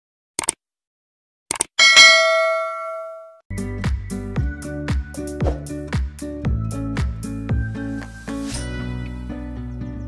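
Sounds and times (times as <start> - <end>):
background music: 3.5 - 10.0.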